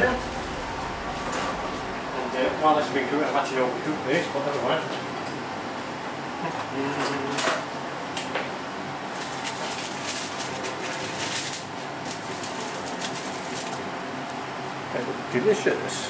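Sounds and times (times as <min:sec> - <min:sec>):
steady low hum: 0:00.0 - 0:06.9
fat crackling in a frying pan: 0:09.1 - 0:13.8.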